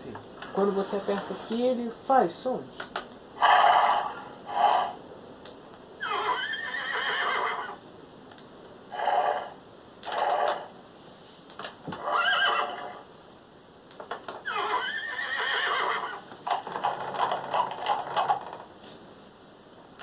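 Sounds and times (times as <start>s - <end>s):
toy horse whinnies: 3.4s - 5.0s, 6.0s - 7.8s, 12.0s - 13.0s, 14.4s - 16.2s.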